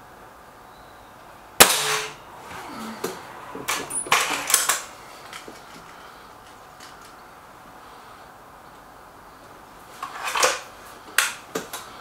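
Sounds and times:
air rifle shot: 1.6 - 2.2.

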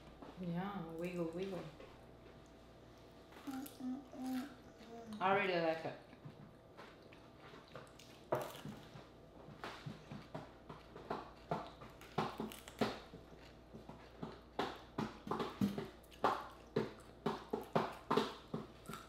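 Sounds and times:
wet chewing and lip smacks: 6.8 - 9.0, 15.6 - 19.0.

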